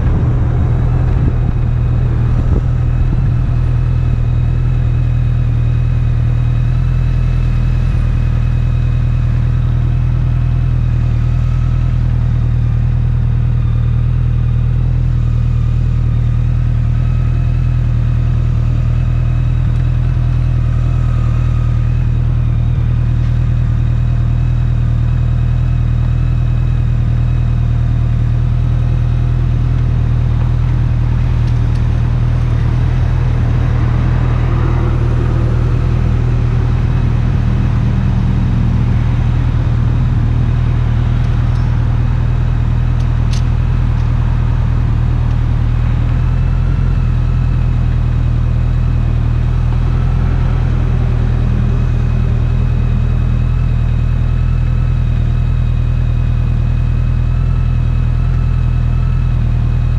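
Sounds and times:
motorcycle engine running steadily: 0.0 - 59.9.

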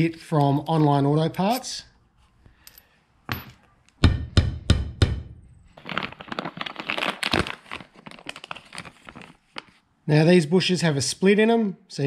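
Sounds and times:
plastic packaging crinkling: 5.7 - 9.8.

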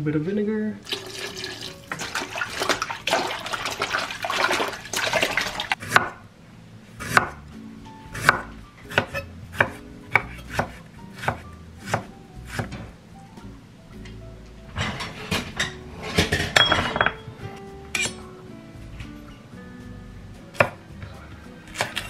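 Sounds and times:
water splashing in a bowl: 0.8 - 5.8
knife chopping on wooden board: 5.8 - 6.2, 7.0 - 7.4, 8.2 - 12.8.

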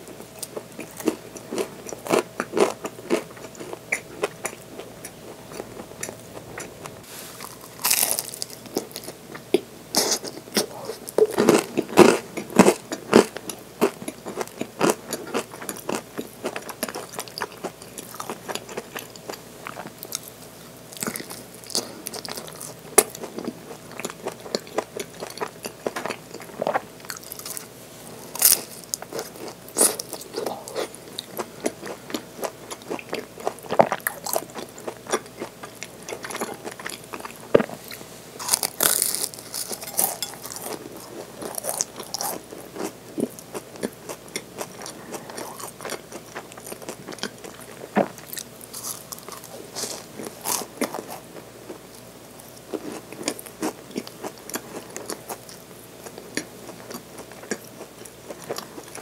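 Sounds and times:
crunchy pastry chewing: 0.1 - 59.0.

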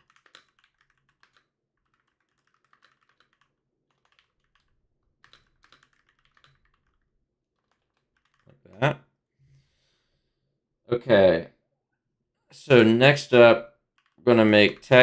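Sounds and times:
computer keyboard typing: 0.0 - 8.5, 13.9 - 15.0.

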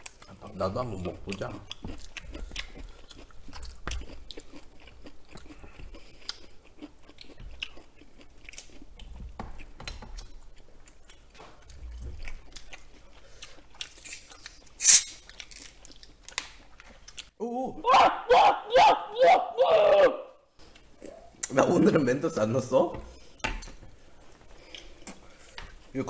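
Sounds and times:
close chewing and eating: 0.0 - 17.4, 20.6 - 26.0
chopsticks and spoon scraping tray: 14.1 - 15.2
bottle opened with hiss of gas: 14.8 - 15.2.

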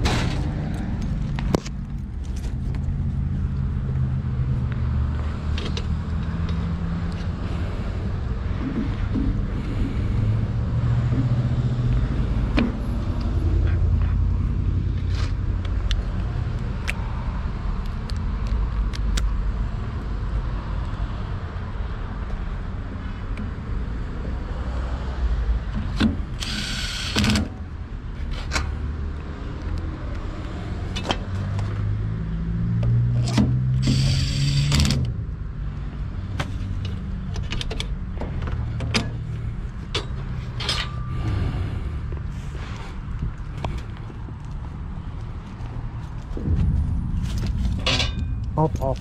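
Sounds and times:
steady low rumble: 6.0 - 20.6, 38.0 - 49.0
impact driver whirring: 26.4 - 27.5.

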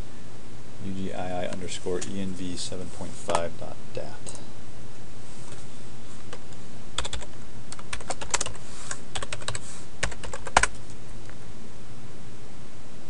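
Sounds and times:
typing on computer keyboard: 7.0 - 10.8.

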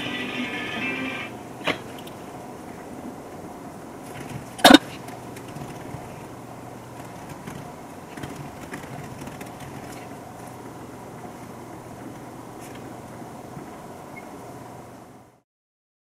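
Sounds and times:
low room hum: 0.0 - 15.4
laptop keys clicking: 7.0 - 10.1.

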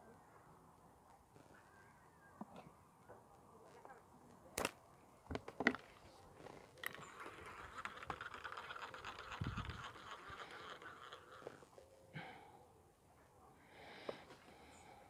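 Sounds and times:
fishing tackle clicks and knocks: 6.8 - 11.6
fine rattle: 6.8 - 11.7.

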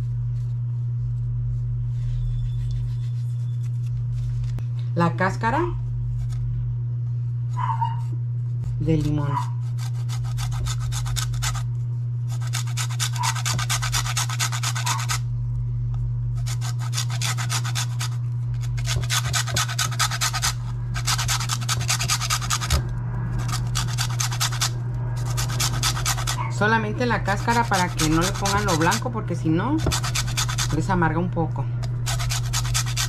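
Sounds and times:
steady low hum: 0.0 - 33.0
lime zested on metal grater: 8.8 - 11.7, 12.3 - 15.2, 16.4 - 22.8, 23.4 - 29.1, 29.8 - 30.9, 32.0 - 33.0.

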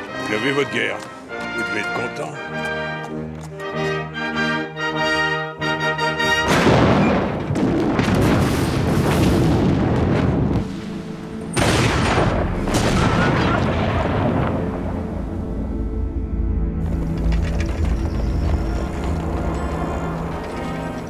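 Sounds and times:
heavy artillery explosions: 6.4 - 15.7.

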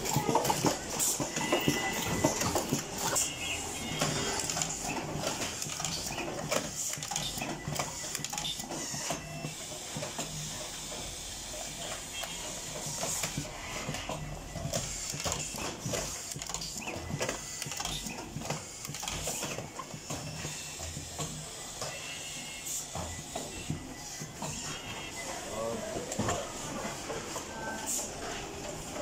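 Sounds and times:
machine motors whirring: 0.0 - 29.0.

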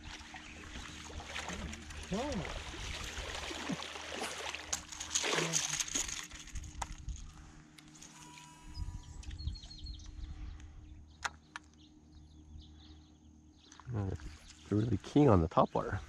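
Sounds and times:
water sloshing: 0.0 - 6.6
fish splashing and thrashing: 0.0 - 6.8.

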